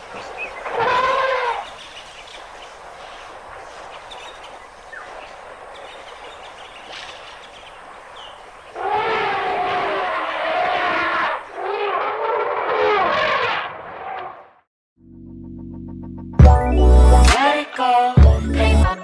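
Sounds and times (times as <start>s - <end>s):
elephant trumpeting: 0.2s - 1.8s, 8.7s - 14.4s.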